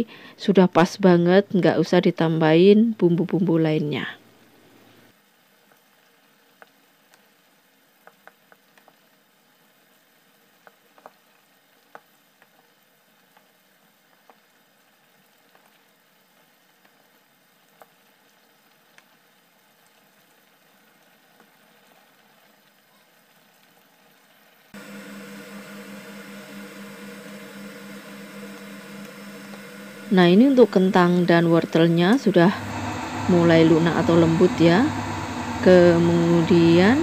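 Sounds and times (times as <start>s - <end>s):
sauce bubbling in a frying pan: 5.1s - 24.8s
low electrical hum: 24.8s - 37.0s.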